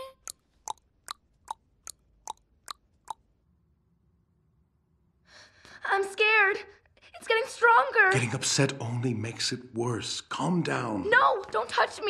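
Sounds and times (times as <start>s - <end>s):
tongue clicks: 0.0s - 3.3s.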